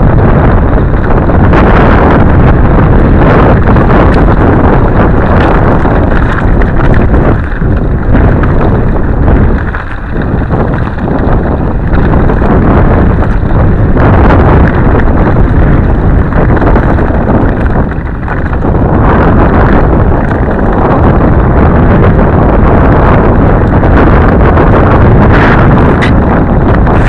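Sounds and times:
bike rattling over rocky trail: 0.0s - 27.0s
wind buffeting microphone: 0.0s - 27.0s.

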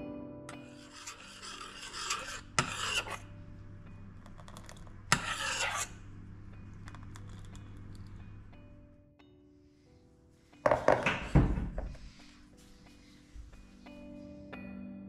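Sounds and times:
spoon scraping saucepan: 0.5s - 8.5s.

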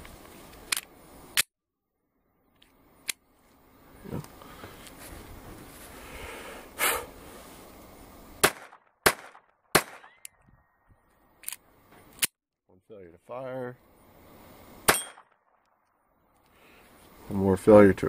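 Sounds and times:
gunshots: 8.4s - 10.2s
pistol handling clicks and clacks: 11.4s - 12.3s.

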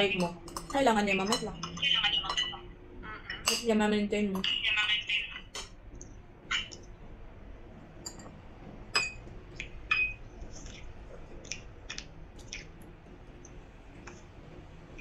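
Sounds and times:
cutlery clinking on ceramic: 0.2s - 2.6s, 3.3s - 3.7s, 9.9s - 10.2s.

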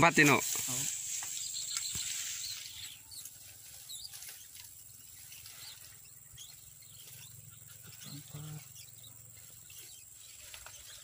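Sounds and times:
faint chirps: 0.1s - 11.0s
high-pitched insect drone: 5.8s - 11.0s.

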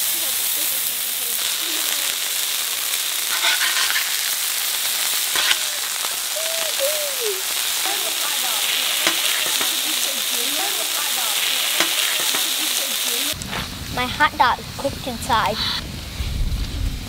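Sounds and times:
patties sizzling on a griddle: 0.0s - 17.0s
metal spatula scraping: 3.3s - 4.6s, 5.3s - 5.9s, 8.6s - 10.2s, 11.4s - 12.7s.

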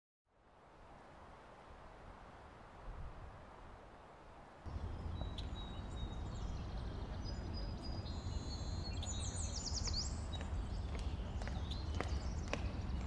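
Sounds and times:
steady low rumble: 4.7s - 13.0s
birds chirping and whistling: 4.8s - 13.0s.

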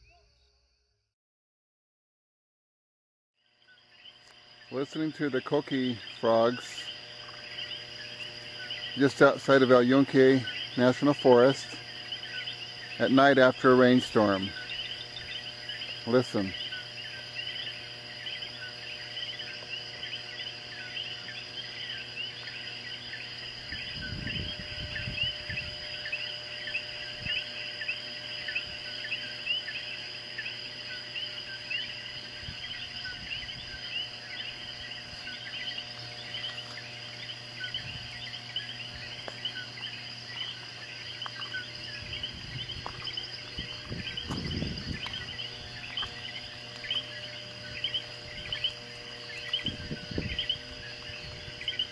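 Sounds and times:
frogs calling: 3.4s - 51.9s
steady high-pitched tone: 4.6s - 51.9s
low rumbles: 36.2s - 51.9s.

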